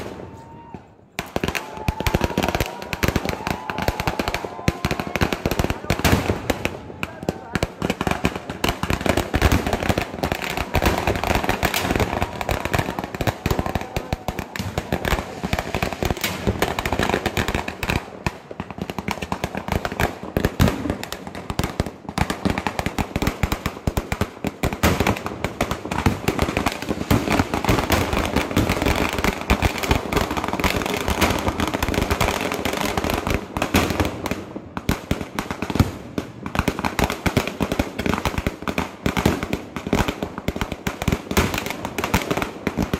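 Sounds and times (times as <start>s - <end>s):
firecrackers banging: 0.0s - 42.9s.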